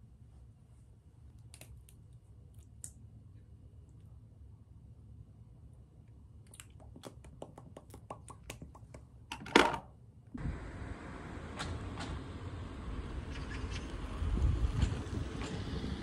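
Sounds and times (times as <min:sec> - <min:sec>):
wind noise on microphone: 0:12.7 - 0:16.0.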